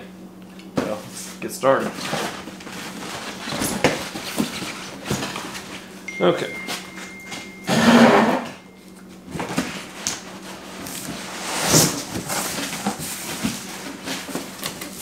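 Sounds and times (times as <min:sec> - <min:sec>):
cardboard scraping: 0:09.4 - 0:15.0.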